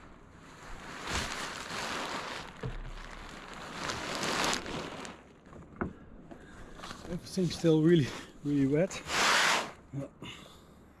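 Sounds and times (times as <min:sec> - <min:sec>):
wet sailcloth rustling and scraping: 0:00.0 - 0:05.6, 0:08.6 - 0:09.8
dull thumps: 0:02.5 - 0:03.4.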